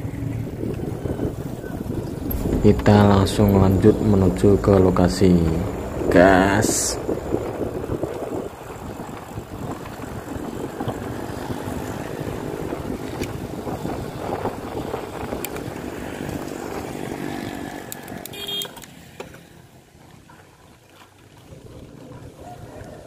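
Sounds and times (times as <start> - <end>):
wind rumbling on microphone: 0.0 - 18.3, 19.8 - 23.0
small motorcycle engine running: 7.4 - 22.7.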